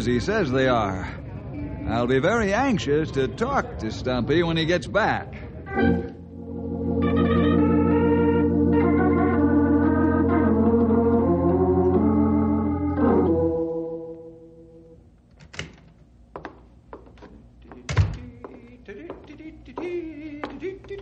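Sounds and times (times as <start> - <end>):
organ chords: 5.7 - 15.1.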